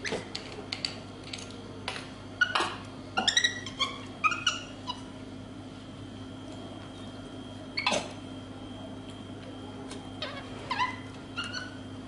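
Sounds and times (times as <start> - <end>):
steady hum: 0.0 - 12.0
monkey squeaking and chirping: 3.2 - 5.0.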